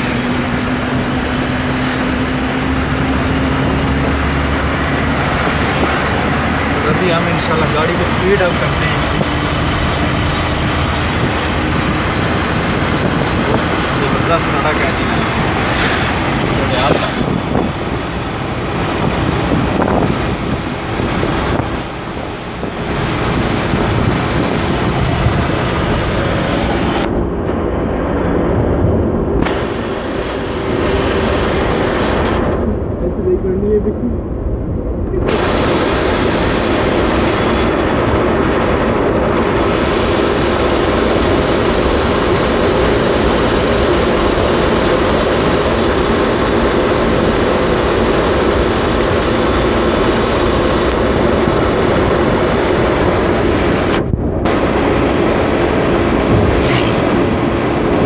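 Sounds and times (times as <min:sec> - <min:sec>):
wind rushing: 0:00.0 - 0:33.1, 0:49.2 - 0:58.0
road noise from car: 0:00.0 - 0:58.0.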